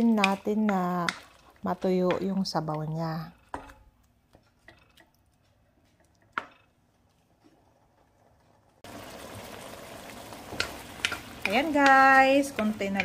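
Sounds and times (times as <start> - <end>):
sauce sizzling in a wok: 8.8 - 13.0.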